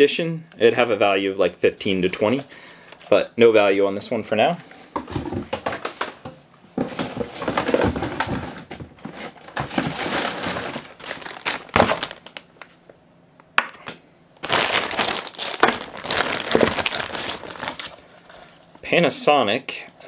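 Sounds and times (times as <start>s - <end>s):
plastic bag crinkling: 6.8s - 12.8s, 14.4s - 18.7s.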